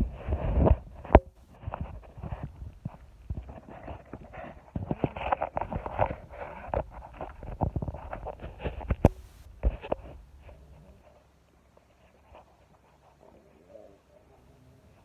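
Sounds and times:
phone handling thumps and rubbing: 0:00.3 - 0:10.6.

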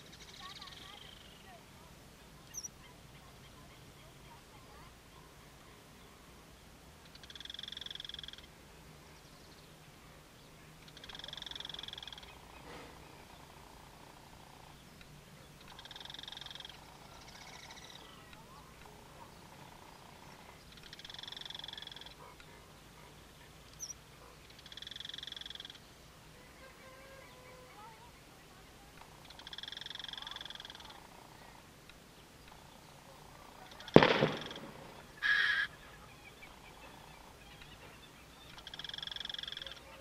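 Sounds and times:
faint low hum: 0:00.0 - 0:40.0
animal buzzy calls: 0:10.9 - 0:14.7, 0:15.7 - 0:18.2, 0:18.8 - 0:22.6, 0:29.2 - 0:31.4, 0:33.6 - 0:40.0.

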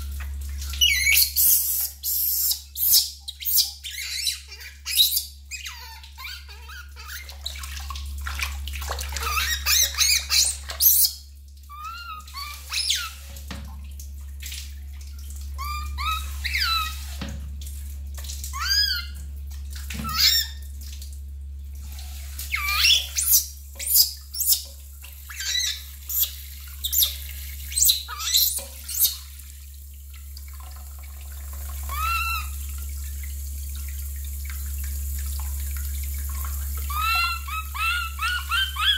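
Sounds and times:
shower spray running: 0:00.0 - 0:07.2, 0:09.2 - 0:11.2, 0:11.8 - 0:13.5, 0:15.5 - 0:17.4, 0:21.8 - 0:29.6, 0:31.0 - 0:38.9
water splashing in metal basin: 0:00.0 - 0:38.9
baby monkey squeaking: 0:00.8 - 0:07.3, 0:09.2 - 0:11.1, 0:11.7 - 0:13.2, 0:15.6 - 0:17.0, 0:18.5 - 0:19.2, 0:20.0 - 0:20.6, 0:22.5 - 0:24.7, 0:25.3 - 0:29.2, 0:31.9 - 0:32.6, 0:36.9 - 0:38.9.

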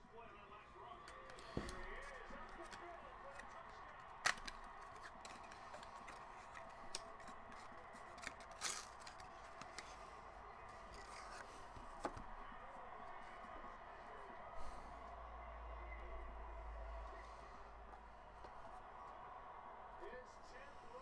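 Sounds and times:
taps and rustles of cards: 0:01.1 - 0:10.1.

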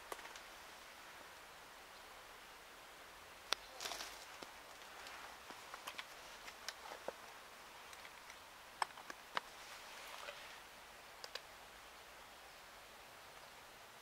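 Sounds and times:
faint hiss: 0:00.0 - 0:14.0
light clicks and ticks: 0:03.5 - 0:07.3, 0:07.9 - 0:09.5, 0:11.2 - 0:11.5.

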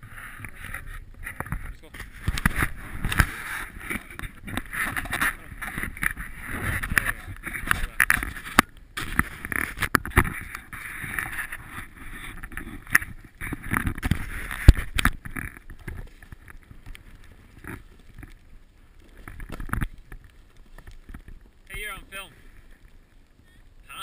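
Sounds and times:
snowboard scraping through snow: 0:00.0 - 0:05.6.

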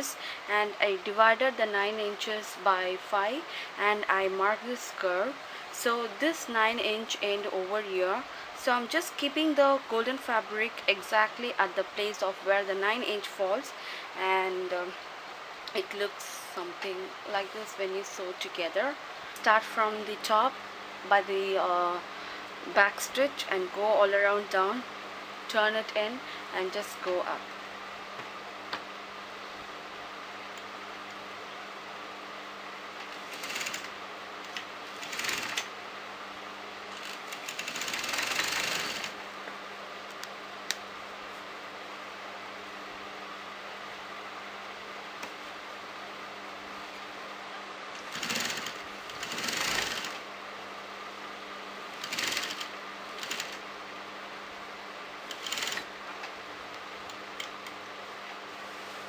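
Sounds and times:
sewing machine stitching: 0:33.2 - 0:33.9, 0:35.0 - 0:35.7, 0:37.0 - 0:39.2, 0:48.1 - 0:50.2, 0:52.0 - 0:53.6, 0:55.3 - 0:55.9.

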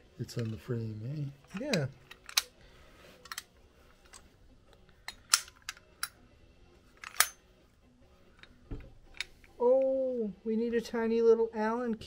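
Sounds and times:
metal parts clicking and knocking: 0:01.4 - 0:02.6, 0:03.2 - 0:06.3, 0:06.9 - 0:07.5.

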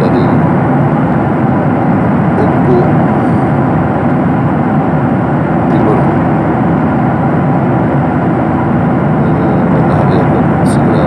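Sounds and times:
airliner cabin noise: 0:00.0 - 0:11.0.

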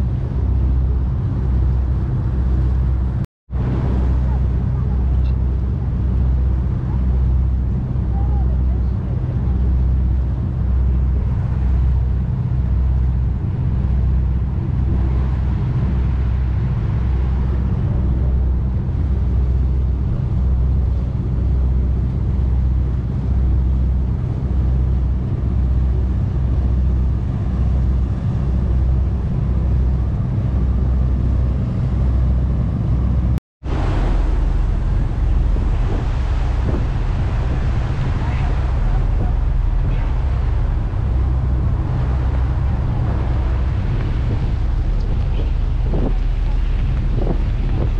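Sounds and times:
boat engine droning: 0:00.0 - 0:47.9
water rushing along hull: 0:00.0 - 0:47.9.

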